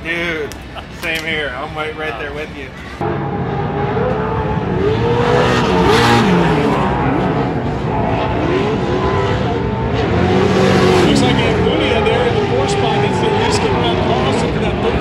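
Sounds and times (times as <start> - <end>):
race engines revving: 2.7 - 15.0
vehicle passing close: 3.0 - 15.0.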